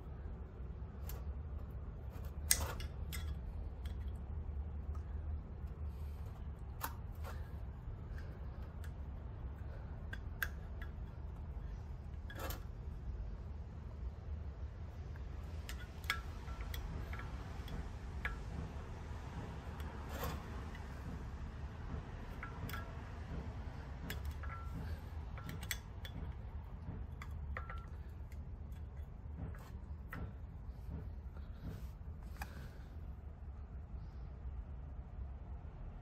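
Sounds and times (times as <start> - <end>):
steady low hum: 0.0 - 36.0
small metal clicks and taps: 1.0 - 7.5, 8.1 - 12.7, 15.1 - 21.3, 21.9 - 32.6.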